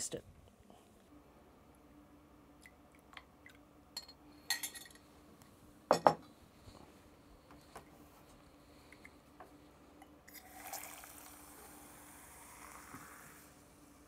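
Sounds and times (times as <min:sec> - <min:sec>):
glassware clinking: 0:04.0 - 0:05.0, 0:05.9 - 0:06.2.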